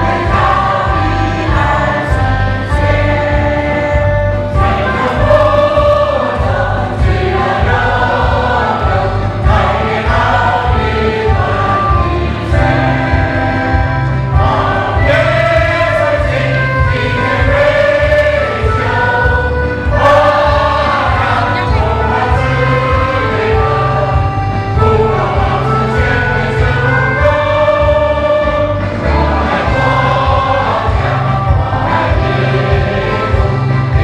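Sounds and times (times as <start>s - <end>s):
large choir singing: 0.0s - 34.0s.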